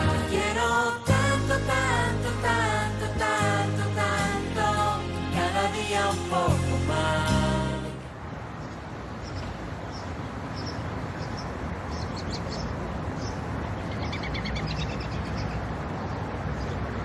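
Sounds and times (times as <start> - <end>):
street noise: 0.0 - 17.0
small birds chirping: 8.6 - 17.0.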